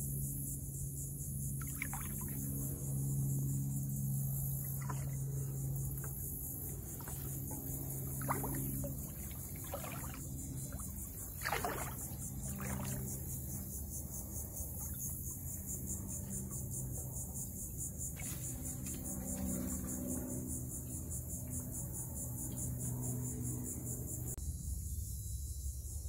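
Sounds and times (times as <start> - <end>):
insects chorus: 0.0 - 26.0
legs sloshing through water: 1.6 - 2.6, 4.5 - 13.8.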